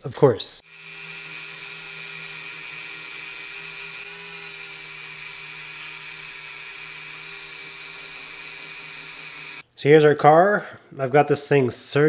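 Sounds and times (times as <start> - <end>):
rotary tool whining: 0.6 - 9.6.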